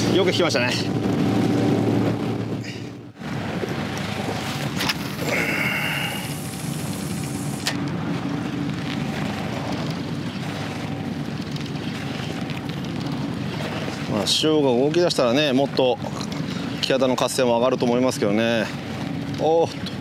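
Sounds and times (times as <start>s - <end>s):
boat engine running: 0.0s - 20.0s
wind and water rushing: 0.0s - 20.0s.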